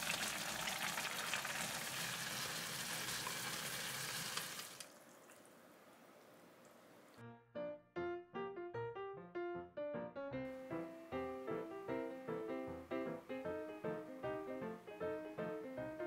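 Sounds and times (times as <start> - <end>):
sauce bubbling and sizzling in pan: 0.0 - 5.0
piano music: 7.2 - 16.0.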